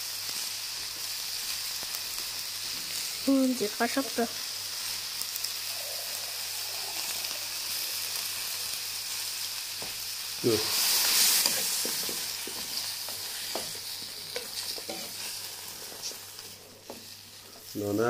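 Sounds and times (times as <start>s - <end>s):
food sizzling in a wok: 0.0s - 18.0s
metal spoon scraping wok: 14.3s - 16.0s.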